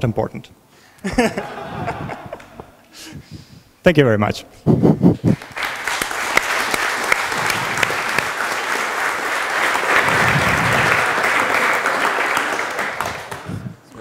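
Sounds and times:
audience applauding: 0:05.2 - 0:13.8.

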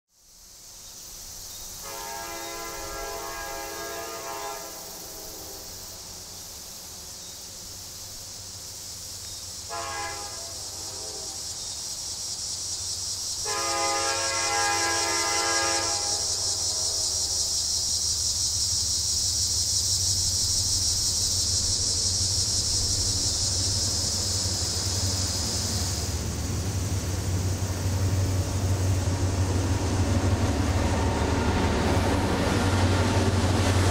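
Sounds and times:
locomotive horn blasts: 0:01.8 - 0:05.7, 0:09.7 - 0:11.4, 0:13.4 - 0:17.6
low locomotive rumble: 0:02.6 - 0:33.9.

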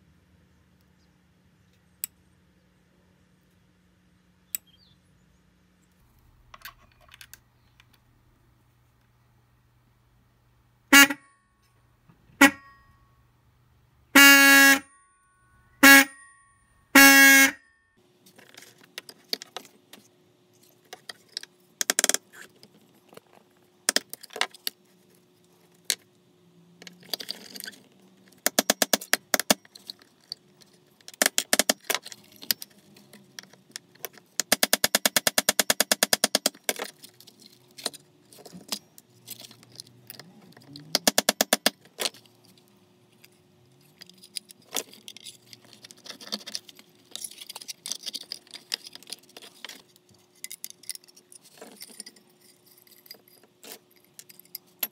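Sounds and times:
electric car horn blasts: 0:10.9 - 0:11.4, 0:12.4 - 0:12.8, 0:14.1 - 0:15.0, 0:15.6 - 0:17.8.

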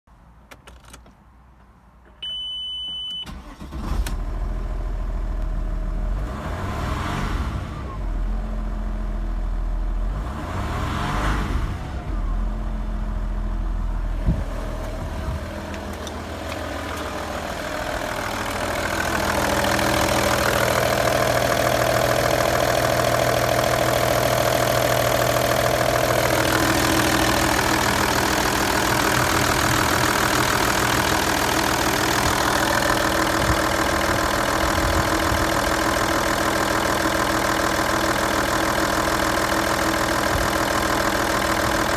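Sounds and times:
dashboard warning beep: 0:02.1 - 0:03.5
diesel engine starting and idling: 0:02.1 - 0:41.9.

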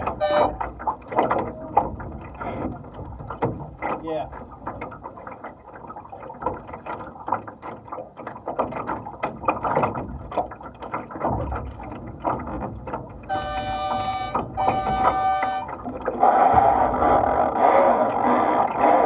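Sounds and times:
water slapping against hull: 0:00.0 - 0:19.0
horn blast: 0:00.1 - 0:00.6, 0:13.3 - 0:15.8.

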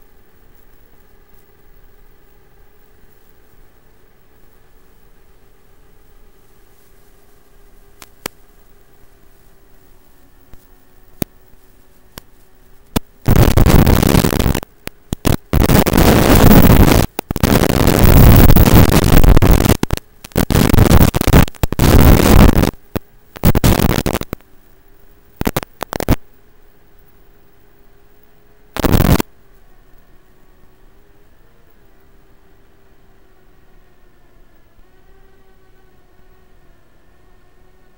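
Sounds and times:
faint hiss: 0:00.0 - 0:37.9
steady low hum: 0:00.0 - 0:37.9
radio static bursts: 0:09.9 - 0:26.4, 0:28.7 - 0:29.3.

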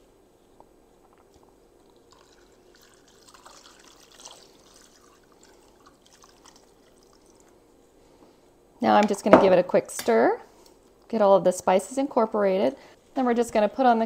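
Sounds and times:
water trickling into a pot: 0:02.0 - 0:07.5.

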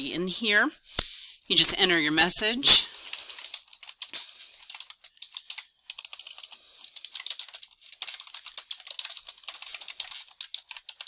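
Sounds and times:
typing on computer keyboard: 0:03.1 - 0:11.0.

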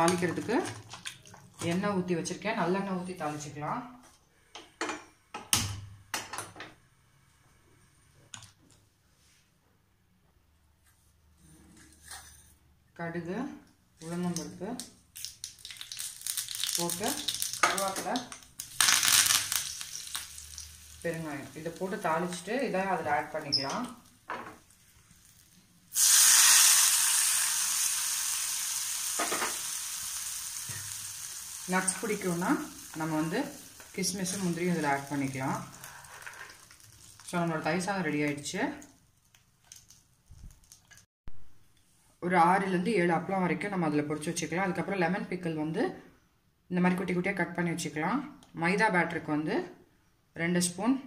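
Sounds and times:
hot oil sizzling on rice: 0:15.2 - 0:37.9.

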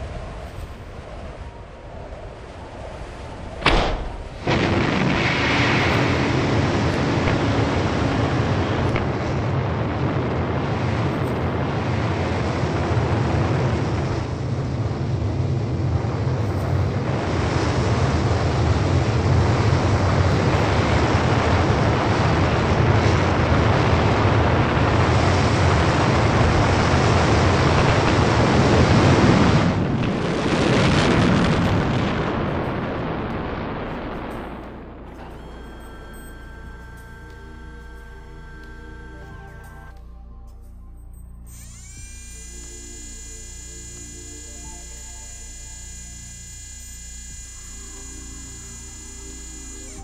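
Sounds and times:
wind-like flight rushing: 0:00.0 - 0:35.1
low rumble: 0:00.0 - 0:50.0.

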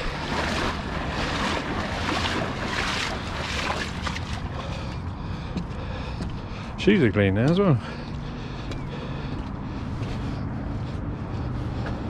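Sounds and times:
water splashing and sloshing: 0:00.0 - 0:06.8.

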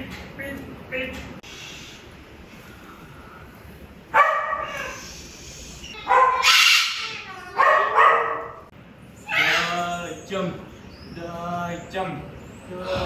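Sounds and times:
cockatoo calling: 0:04.2 - 0:10.4.

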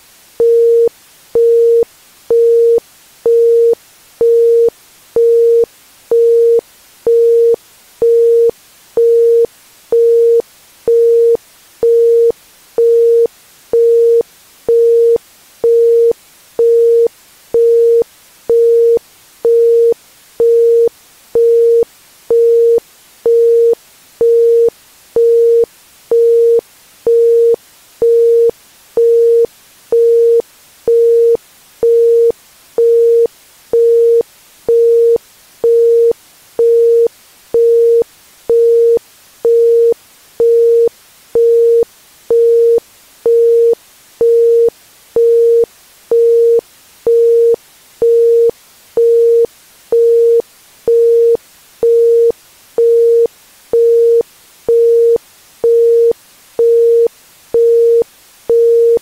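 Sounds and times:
faint hiss: 0:00.0 - 0:59.0
pure tone beeps: 0:46.2 - 0:59.0.

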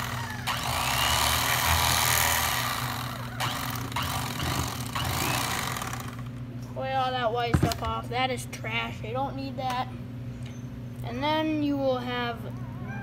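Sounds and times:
electric fillet knife buzzing: 0:00.0 - 0:06.4.

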